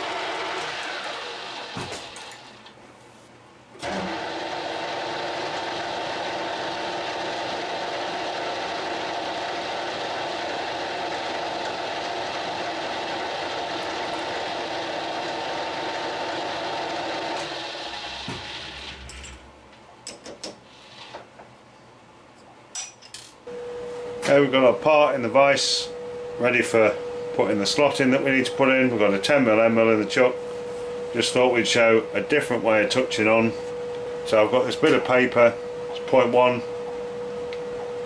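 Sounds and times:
metal lathe running with gear whine: 0.0s - 2.6s, 3.8s - 19.4s.

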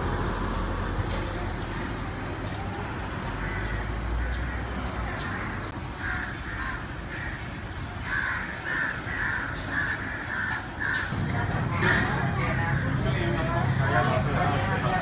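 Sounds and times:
street traffic rumble: 0.0s - 15.0s
crow cawing: 3.4s - 11.2s.

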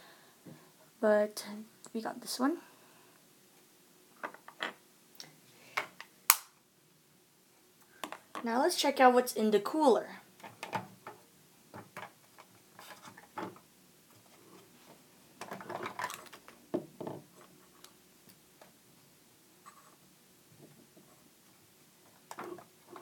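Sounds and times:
plastic toys clicking and rattling: 15.4s - 16.6s.

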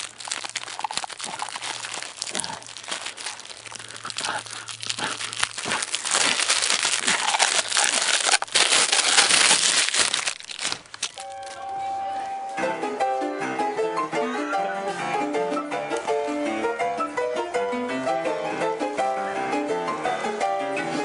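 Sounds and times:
hands crinkling string spool: 0.0s - 11.8s.

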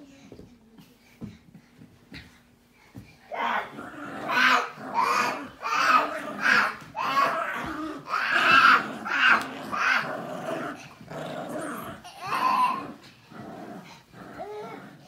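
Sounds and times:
dog growling: 3.3s - 15.0s.

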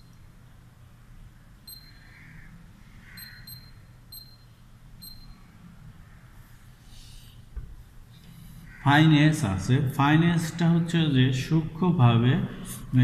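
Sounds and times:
keypad beeping: 1.7s - 2.1s, 3.2s - 5.4s.

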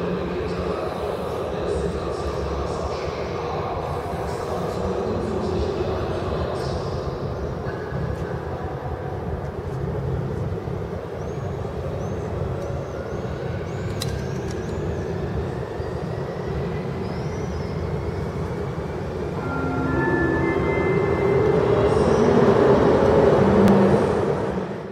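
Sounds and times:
whine rising in pitch: 19.4s - 22.7s.

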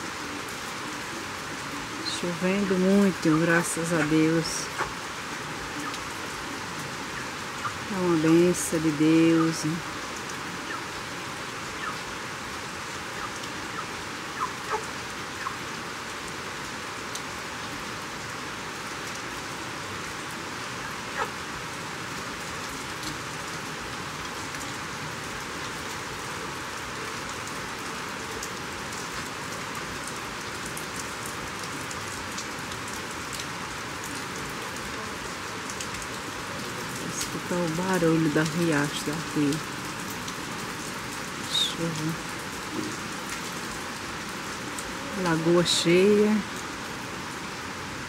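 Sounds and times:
heavy rain falling: 0.0s - 48.0s
sharp raindrop ticks: 28.2s - 35.0s, 35.6s - 37.8s.

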